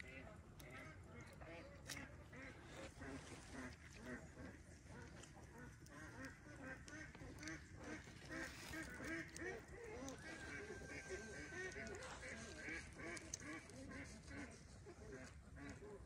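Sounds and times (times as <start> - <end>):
ducks quacking: 0.0 - 16.0.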